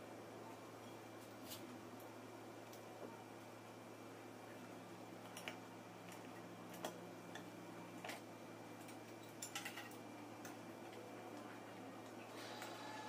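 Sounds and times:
steady low hum: 0:00.0 - 0:13.0
small clicks and taps of parts: 0:08.8 - 0:12.7.

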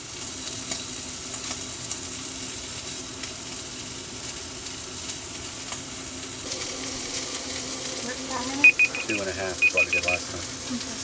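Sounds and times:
steak sizzling in a hot pan: 0:00.0 - 0:11.0.

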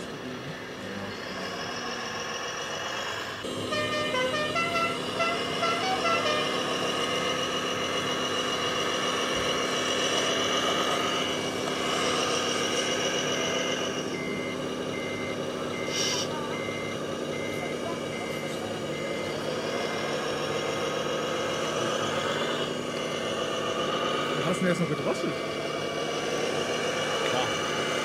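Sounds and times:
simulated diesel engine running: 0:00.0 - 0:28.0
short horn toots: 0:03.8 - 0:06.6
reversing beeps: 0:14.1 - 0:20.1, 0:22.9 - 0:23.5.

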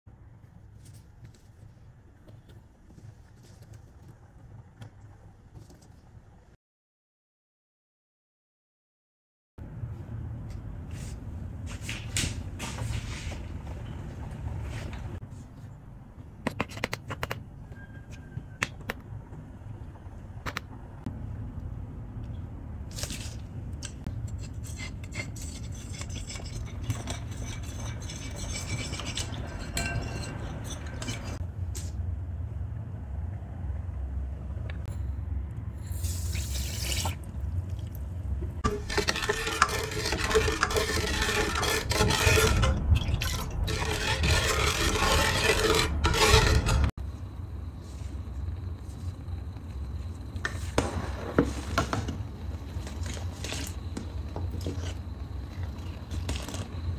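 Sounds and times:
liquid mixing in metal pot: 0:24.3 - 0:31.4, 0:38.6 - 0:46.9.

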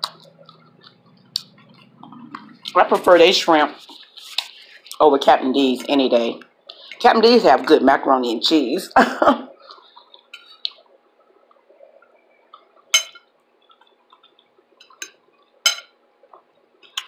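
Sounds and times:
faint chewing: 0:00.0 - 0:02.8, 0:09.6 - 0:12.9, 0:13.6 - 0:15.6
fork clinking on a plate: 0:12.9 - 0:13.3, 0:14.8 - 0:16.0.

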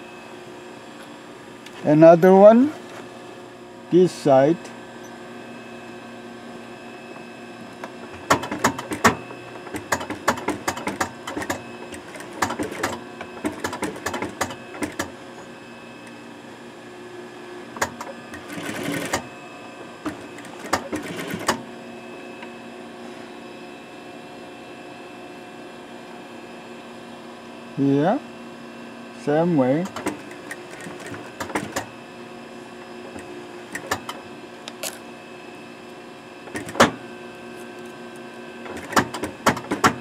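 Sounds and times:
sewing machine stitching: 0:08.2 - 0:15.1, 0:17.8 - 0:19.3, 0:20.1 - 0:21.6, 0:29.8 - 0:31.9.

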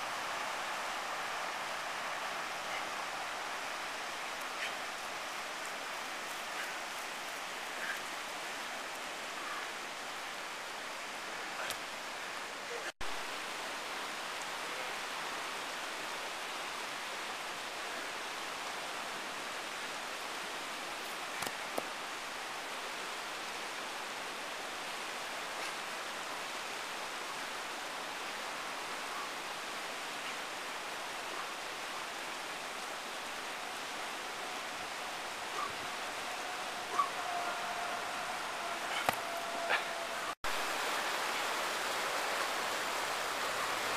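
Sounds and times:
river rushing over rapids: 0:00.0 - 0:43.9
faint clicks: 0:11.6 - 0:11.9.

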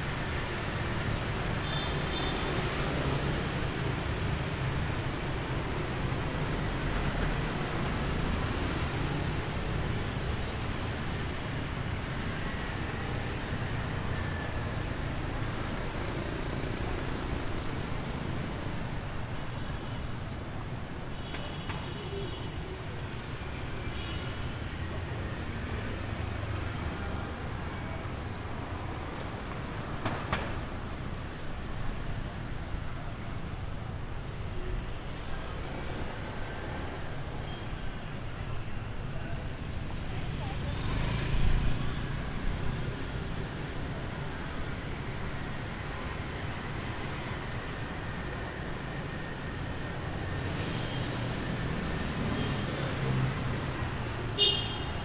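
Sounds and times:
motorbikes and cars passing: 0:00.0 - 0:19.5, 0:39.3 - 0:55.0.

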